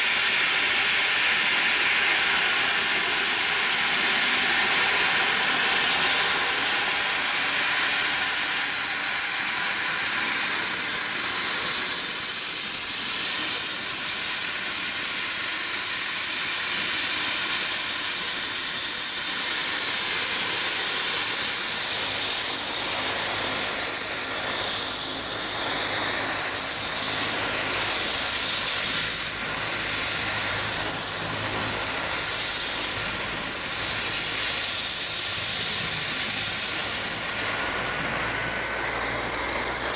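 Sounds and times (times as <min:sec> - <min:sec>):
helicopter rotor throb: 0:00.0 - 0:39.9
helicopter turbine whine: 0:00.0 - 0:39.9.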